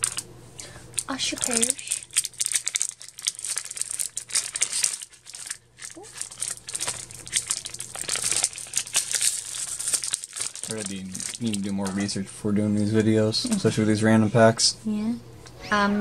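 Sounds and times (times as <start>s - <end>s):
wrapper crinkling and tearing: 0.0s - 0.2s, 1.0s - 12.2s.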